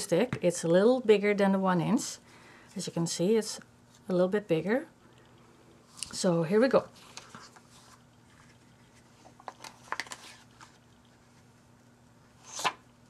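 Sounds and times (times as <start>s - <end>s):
faint paper rustles: 6.9s - 11.7s.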